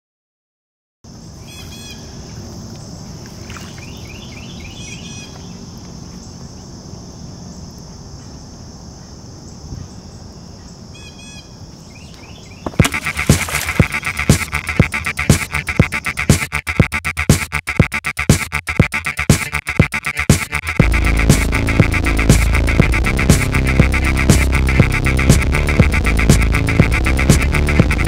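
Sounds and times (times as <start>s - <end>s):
insects droning: 1.1s - 17.3s, 20.0s - 28.0s
low background rumble: 20.8s - 28.0s.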